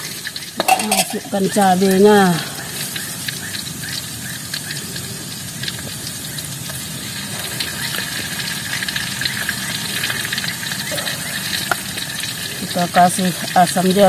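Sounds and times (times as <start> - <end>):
hot oil sizzling and crackling: 0.0 - 14.0.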